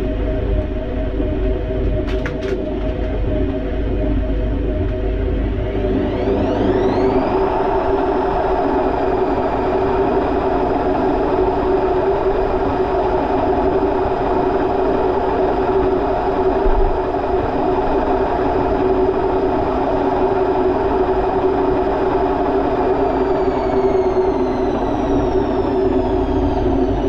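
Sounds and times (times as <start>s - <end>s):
washing machine motor whine: 0.0s - 27.0s
spinning drum rushing: 5.6s - 27.0s.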